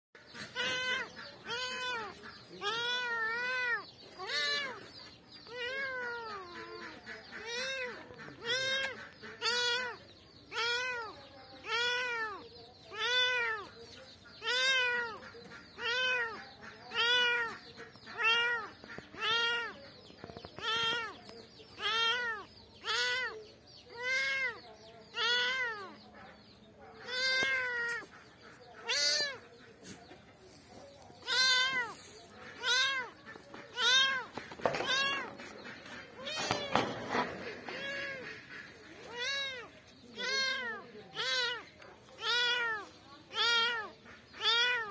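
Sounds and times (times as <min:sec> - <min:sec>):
kitten meowing: 0:07.4 - 0:13.6, 0:14.4 - 0:15.2, 0:25.2 - 0:26.0, 0:27.0 - 0:28.0, 0:28.8 - 0:29.4, 0:31.2 - 0:32.0, 0:39.1 - 0:41.6.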